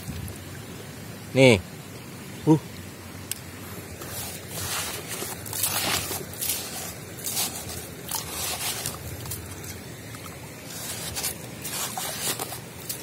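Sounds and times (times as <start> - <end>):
wet sand and gravel scraping: 3.6 - 13.0.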